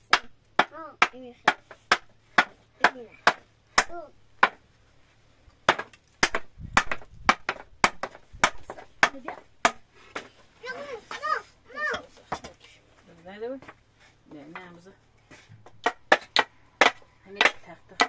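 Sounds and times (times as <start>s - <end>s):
sharp knocks: 5.7s - 10.4s.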